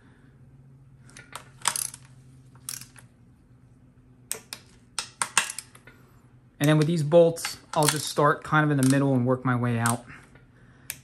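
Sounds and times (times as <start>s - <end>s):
faint steady hum: 0.0s - 11.0s
torque wrench clicking: 6.6s - 8.2s.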